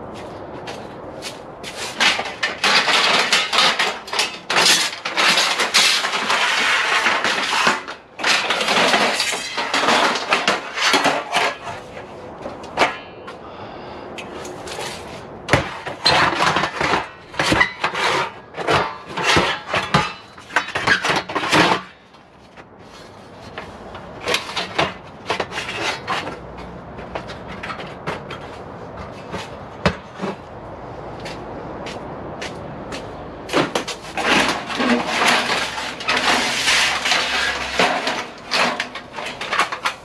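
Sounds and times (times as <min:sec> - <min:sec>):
aluminum lengths clattering: 0:01.7 - 0:13.1, 0:14.7 - 0:22.0, 0:33.5 - 0:40.0.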